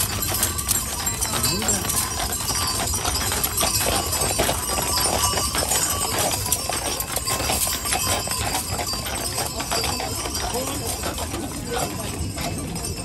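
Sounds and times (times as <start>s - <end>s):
horse hooves clip-clopping on asphalt: 0.0s - 13.0s.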